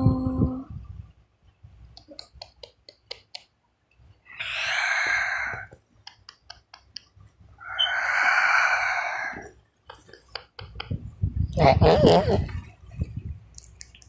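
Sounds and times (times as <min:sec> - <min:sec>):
breathy exhales: 0:04.3 - 0:05.7, 0:07.6 - 0:09.6.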